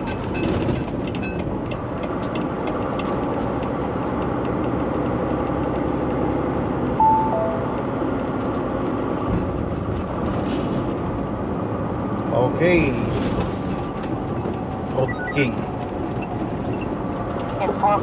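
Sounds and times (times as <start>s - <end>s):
road noise: 0.0s - 18.0s
truck engine hum: 0.1s - 18.0s
two-note descending chime: 7.0s - 8.0s.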